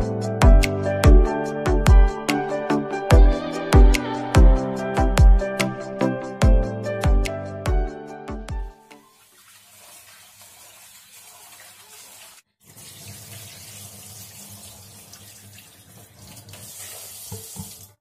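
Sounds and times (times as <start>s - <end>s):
rice being rinsed: 8.9s - 18.0s
tap running into metal sink: 14.6s - 18.0s.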